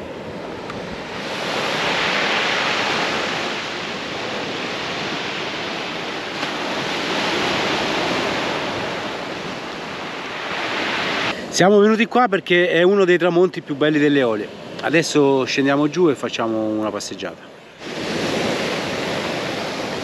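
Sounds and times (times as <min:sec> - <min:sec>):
waves washing up pebble beach: 0:00.0 - 0:11.6, 0:17.8 - 0:20.0.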